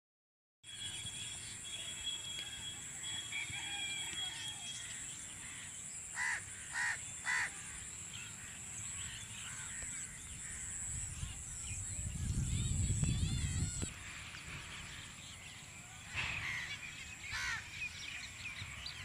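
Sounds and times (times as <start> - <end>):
crow cawing: 5.4 - 7.8, 16.3 - 17.7.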